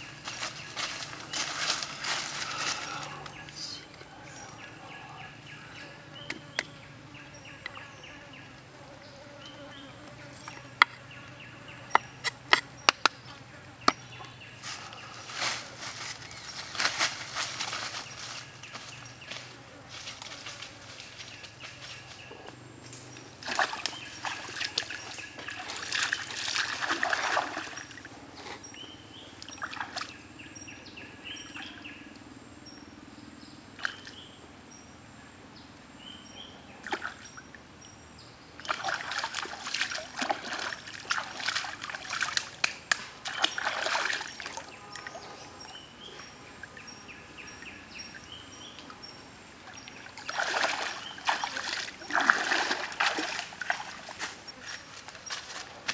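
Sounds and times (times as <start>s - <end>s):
hands splashing in stream: 23.4s - 28.0s, 38.6s - 45.3s, 50.2s - 54.4s
water trickling: 49.6s - 54.8s.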